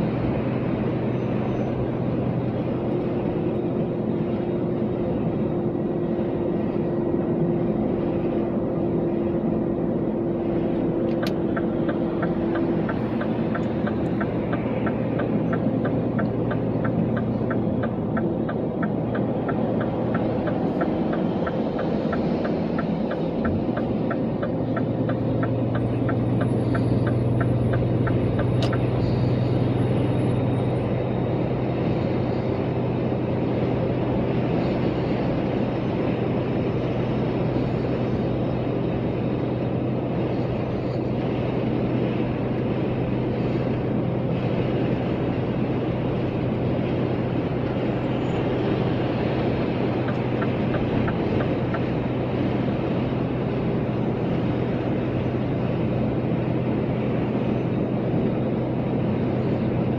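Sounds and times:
vehicle engine and road noise: 0.0 - 59.9
light regular ticking: 11.1 - 28.8.

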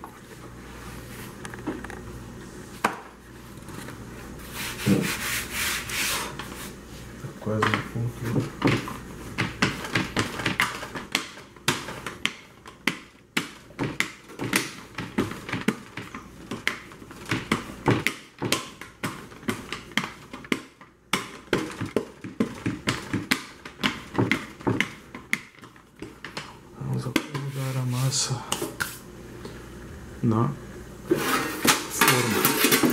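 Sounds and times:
rolling pin rubbing over dough: 4.2 - 7.2
rolling pin knocks and clacks: 7.6 - 26.5.

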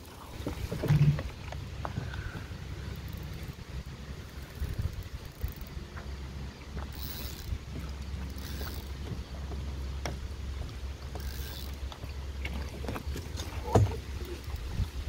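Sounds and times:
wind on microphone: 0.0 - 5.8, 12.8 - 15.0
fishing rod clicks: 4.3 - 5.8, 6.8 - 9.0, 11.0 - 12.0.

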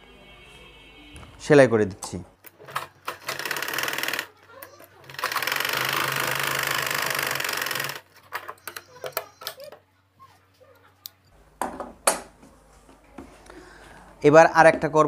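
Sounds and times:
sewing machine running: 2.6 - 8.1.

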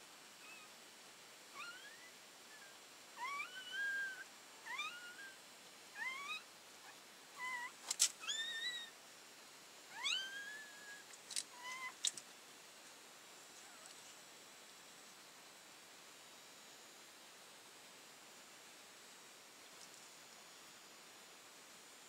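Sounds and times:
puppies squealing: 0.4 - 0.7, 1.6 - 5.4, 6.0 - 6.5, 7.4 - 9.0, 9.9 - 12.0.

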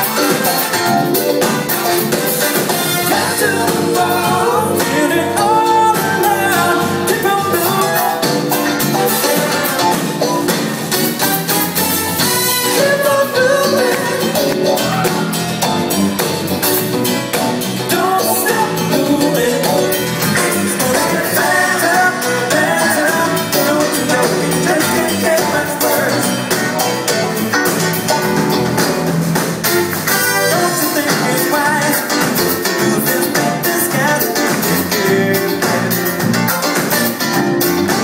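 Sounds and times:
live band playing upbeat song: 0.0 - 38.0
lead singer singing: 3.0 - 10.0, 12.6 - 15.5, 17.8 - 26.8, 30.4 - 36.3.

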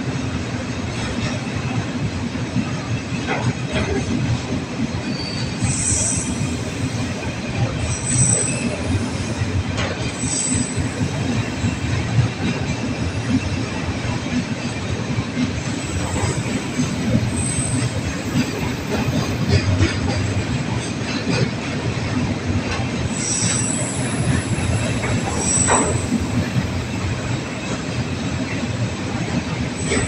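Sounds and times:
steel wheels rumbling on rail: 0.0 - 30.0
high-pitched wheel squeals: 5.0 - 6.4, 7.9 - 9.0, 23.2 - 26.2.

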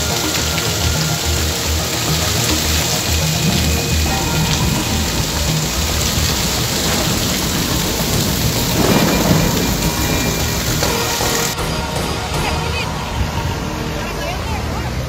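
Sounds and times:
heavy rain pouring: 0.0 - 15.0
deep low rumble: 3.2 - 11.6.

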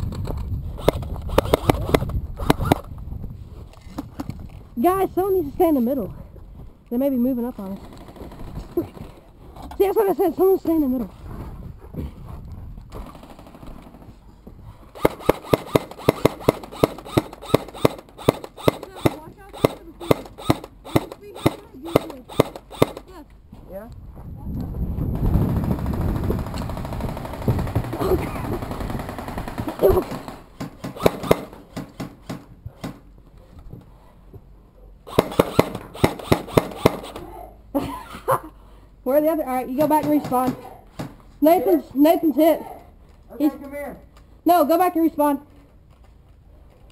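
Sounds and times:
airsoft gun shots: 0.8 - 2.9, 15.0 - 23.1, 26.4 - 33.0, 35.1 - 37.3.

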